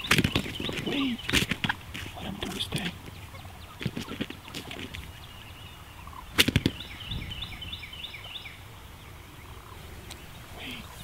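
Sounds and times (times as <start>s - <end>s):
turkey wing flaps: 0.0s - 5.1s, 6.3s - 6.8s.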